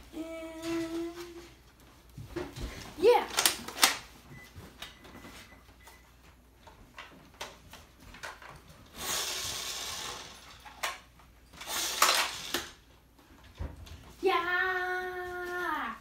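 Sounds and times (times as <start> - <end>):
toy blaster pull cord: 8.9 - 11.0, 11.6 - 12.8.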